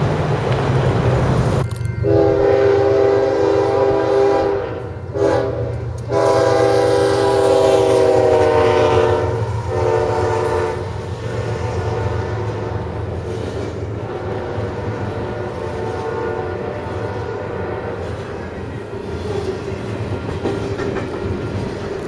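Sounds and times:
wind: 0:00.0 - 0:22.0
train air horn blasts: 0:02.0 - 0:18.3.

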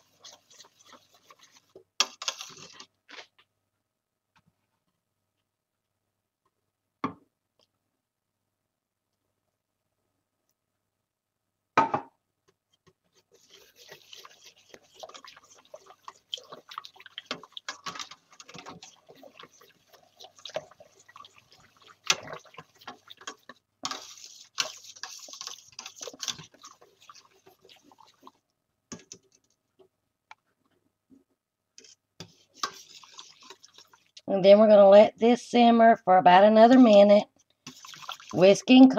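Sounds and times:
liquid sloshing: 0:00.0 - 0:02.9, 0:13.1 - 0:29.6, 0:31.8 - 0:34.3, 0:37.6 - 0:38.8
whisk scraping a metal pot: 0:00.0 - 0:02.9, 0:13.1 - 0:29.5, 0:31.8 - 0:34.2, 0:37.6 - 0:38.9
whisk knocking on pot: 0:13.4 - 0:28.3.

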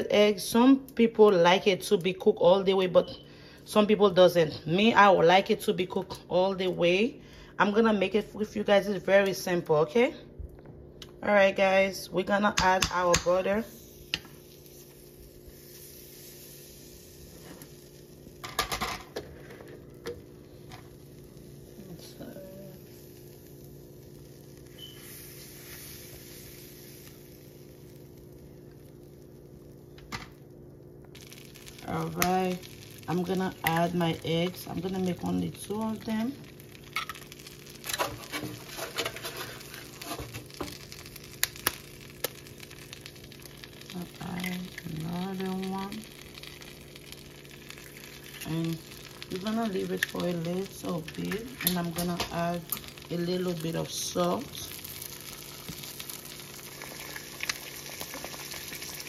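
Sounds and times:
faint steady hum: 0:00.0 - 0:59.0
egg sizzling in a pan: 0:12.5 - 0:59.0.

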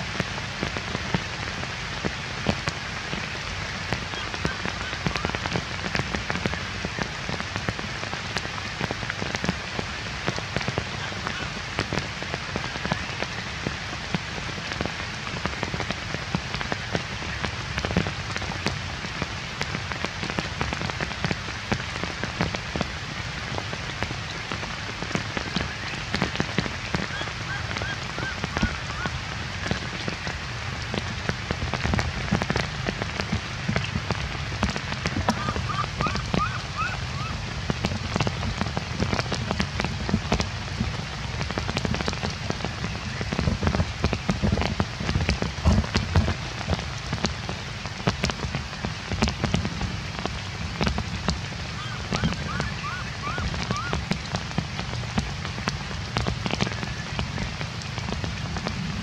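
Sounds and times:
heavy rain on dead leaves: 0:00.0 - 0:59.0.

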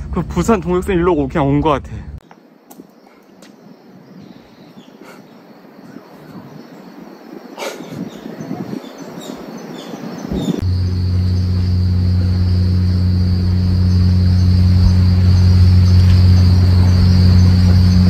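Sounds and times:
loud low hum: 0:00.0 - 0:02.2, 0:10.5 - 0:18.0
high-pitched insect buzzing: 0:10.4 - 0:18.0.

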